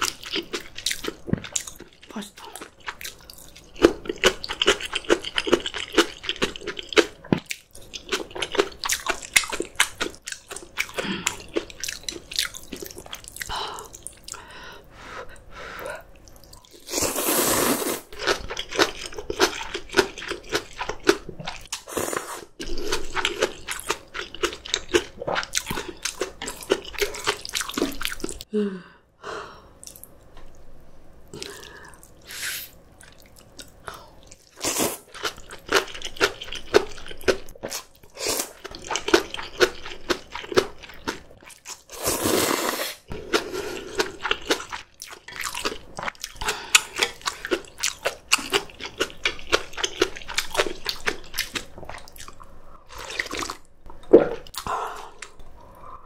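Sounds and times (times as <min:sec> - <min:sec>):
slurping noodles: 0:16.7 - 0:18.4, 0:41.9 - 0:44.4.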